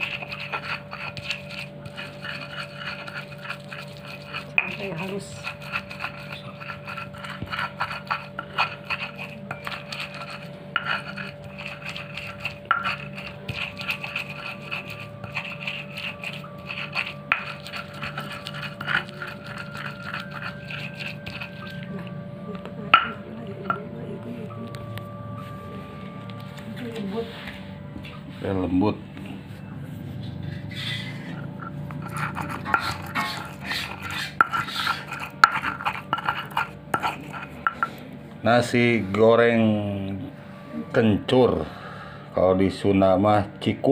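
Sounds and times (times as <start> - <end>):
pestle grinding in stone mortar: 0.0 - 22.2, 30.2 - 39.2.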